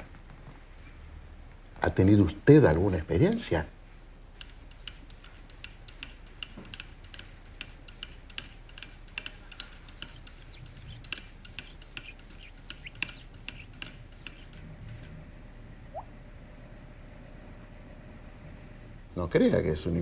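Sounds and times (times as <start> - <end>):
teaspoon clinking in china cup: 4.4 - 15.1.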